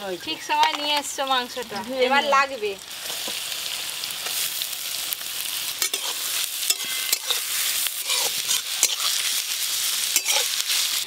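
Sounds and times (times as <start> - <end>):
onions sizzling in a pan: 0.0 - 11.0
spatula scraping a pan: 5.8 - 11.0.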